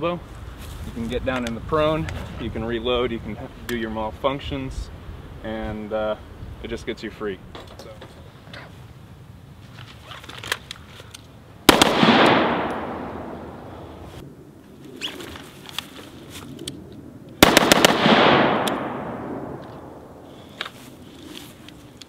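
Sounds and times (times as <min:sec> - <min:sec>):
rifle shots echoing: 0:11.7 - 0:14.0, 0:17.4 - 0:20.2.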